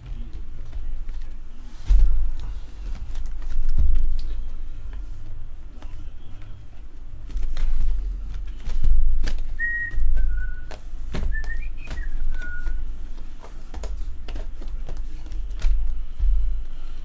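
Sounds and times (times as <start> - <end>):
person whistling a tune: 9.6 - 10.7, 11.3 - 12.8.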